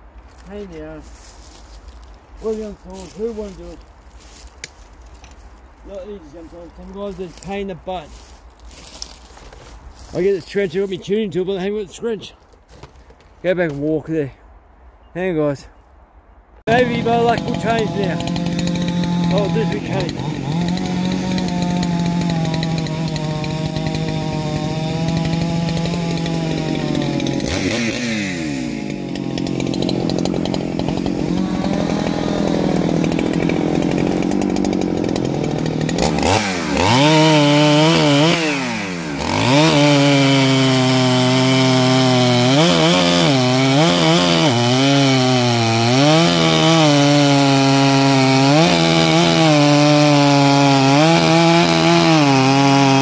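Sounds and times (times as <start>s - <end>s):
chainsaw cutting through log: 1.2s - 9.4s, 16.7s - 53.0s
chainsaw revving: 2.4s - 4.4s, 16.7s - 53.0s.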